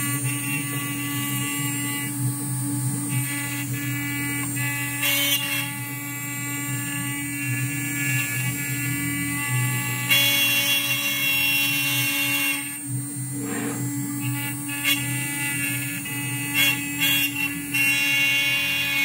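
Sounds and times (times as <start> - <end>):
stepper motors whining: 13.2 - 14.2
router spindle cutting wood: 13.2 - 16.5.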